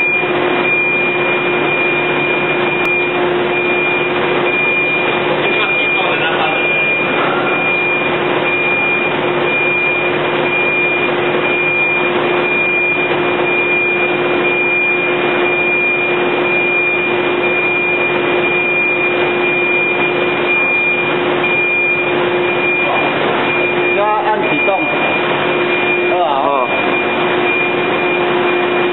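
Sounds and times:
machinery low hum: 0.0s - 28.9s.

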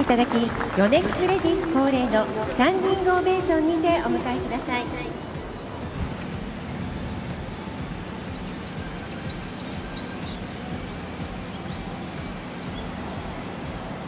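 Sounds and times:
outdoor background noise: 0.0s - 14.0s
small birds chirping: 6.3s - 14.0s.

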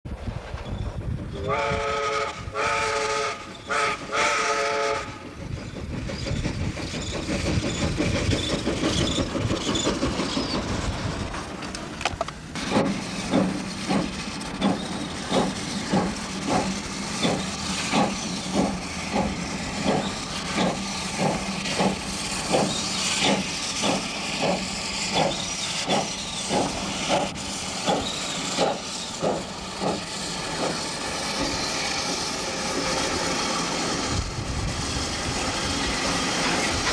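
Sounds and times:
steam locomotive exhaust beats: 0.1s - 36.9s
steam hissing: 0.3s - 36.9s
steam whistle blasts: 1.4s - 5.2s.

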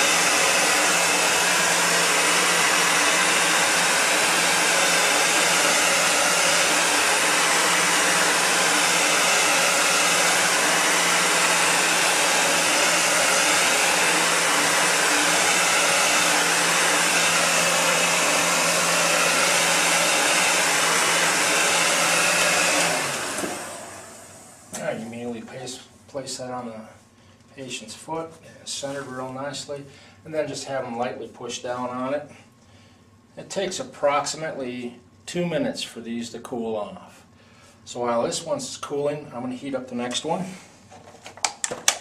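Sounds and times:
heat gun blowing air: 0.0s - 24.7s
heat gun winding down: 0.0s - 24.7s.

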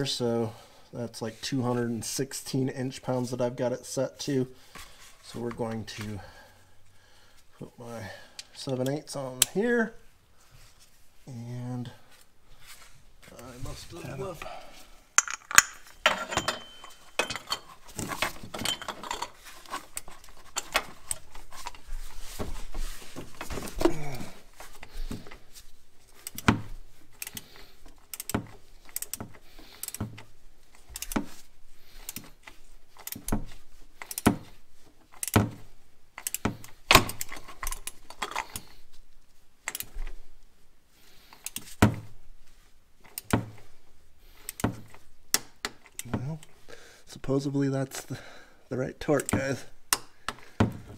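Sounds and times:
metal tools clinking: 15.2s - 21.9s
torque wrench clicking: 28.1s - 29.2s, 30.9s - 31.2s, 36.2s - 36.4s.

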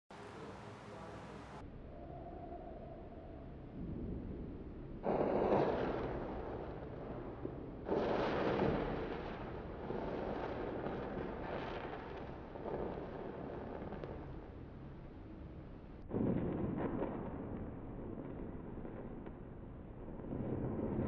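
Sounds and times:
flame burning steadily: 0.1s - 21.0s
matches flaring with whoosh: 5.0s - 15.5s.

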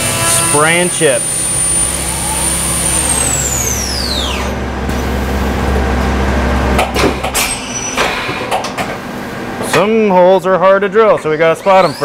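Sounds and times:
milling spindle whine spinning down: 0.2s - 5.6s, 11.4s - 12.0s
low hum: 1.2s - 9.7s
mechanical clunks: 6.0s - 10.0s.

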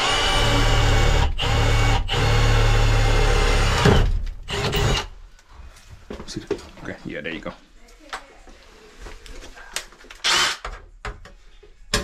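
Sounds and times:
cordless drill boring through metal: 0.0s - 5.1s, 10.2s - 10.6s.

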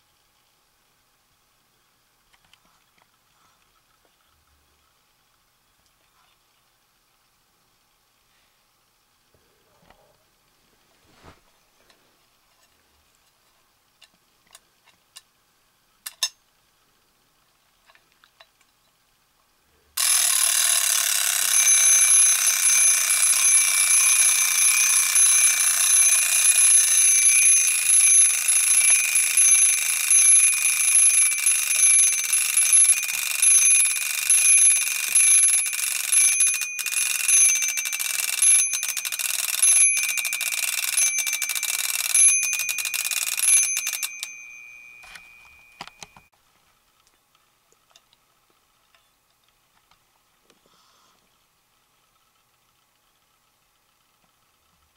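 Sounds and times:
alarm clock bells ringing: 20.0s - 46.2s.

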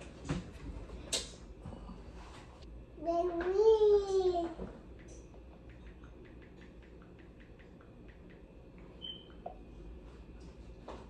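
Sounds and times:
faint irregular clicks: 5.0s - 8.9s.

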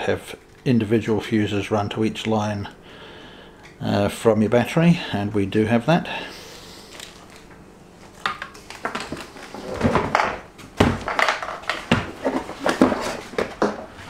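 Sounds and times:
plastic parts clattering: 8.2s - 13.8s.

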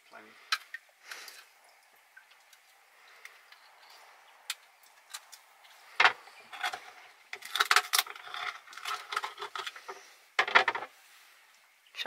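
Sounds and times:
knife scraping shell: 6.5s - 10.0s.

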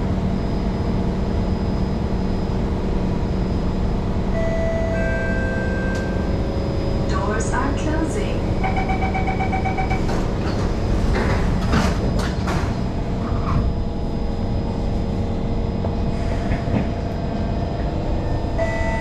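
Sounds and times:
faint motor hum: 0.0s - 11.0s
train wheels rumbling on rails: 7.0s - 18.5s.

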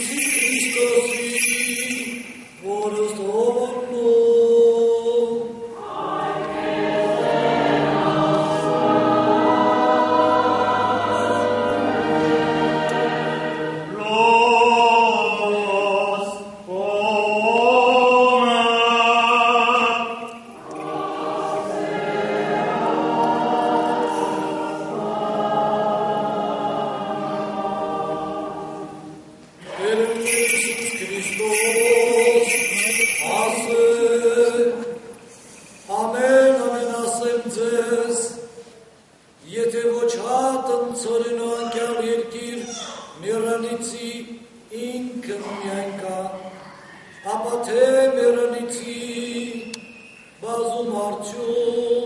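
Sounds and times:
choir singing a slow chant: 4.2s - 31.5s.

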